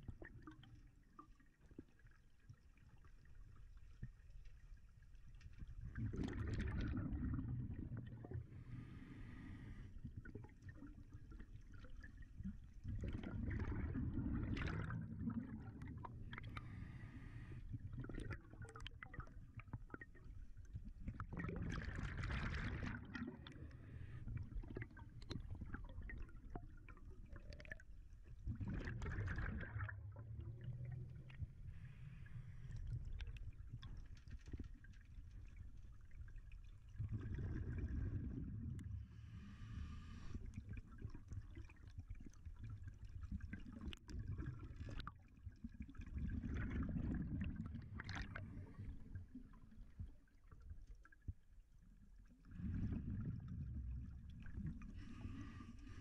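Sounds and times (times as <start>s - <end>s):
exhaled bubbles underwater: 0.0s - 4.2s, 5.6s - 56.0s.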